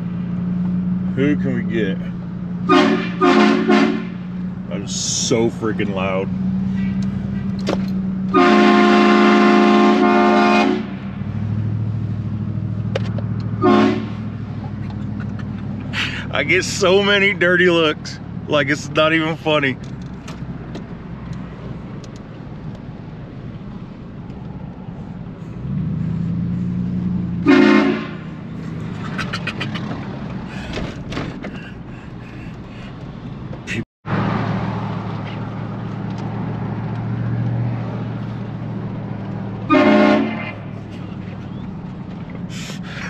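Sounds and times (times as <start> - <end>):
engine and road drone: 0.0 - 43.0
loud air horn blasts: 2.7 - 4.3, 8.3 - 11.0, 13.6 - 14.2, 27.4 - 28.4, 39.7 - 40.7.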